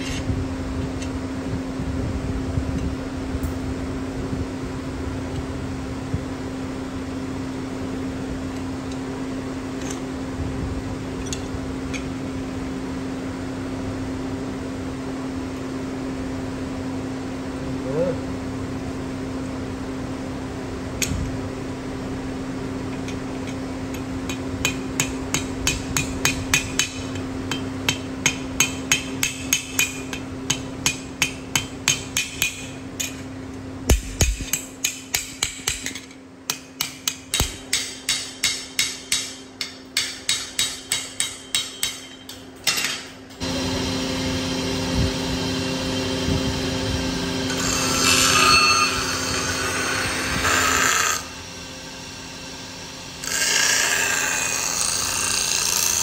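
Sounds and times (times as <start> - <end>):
machine hum: 0.0 - 55.9
hammer striking metal: 23.4 - 33.3, 33.9 - 43.2
grinding wheel on steel blade: 47.2 - 51.5, 53.0 - 56.0.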